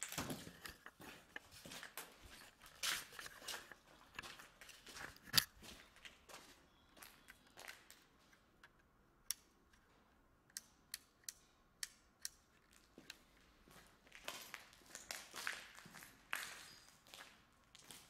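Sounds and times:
footsteps crunching on debris: 0:00.0 - 0:08.0.

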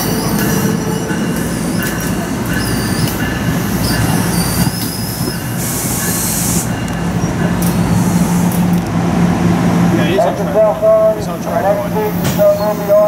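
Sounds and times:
train wheels squealing on rails: 0:00.0 - 0:08.6, 0:12.0 - 0:13.0
train rumble: 0:00.0 - 0:13.0.

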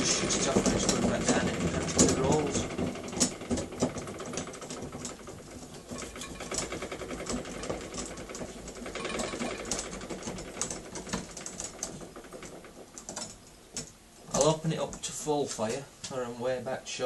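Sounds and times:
model steam engine clattering: 0:00.0 - 0:13.4.

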